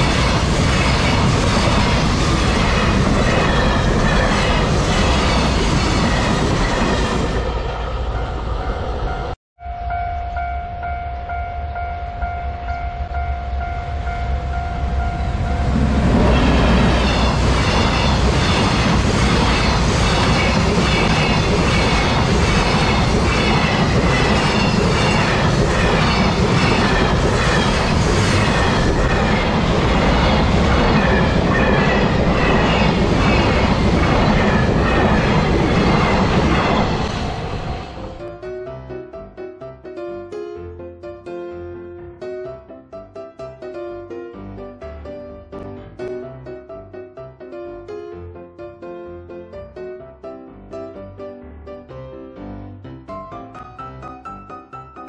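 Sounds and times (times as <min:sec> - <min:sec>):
freight train wagons rolling: 0:00.0 - 0:09.4, 0:15.3 - 0:38.2
train wheels clacking on rail joints: 0:16.1 - 0:37.4.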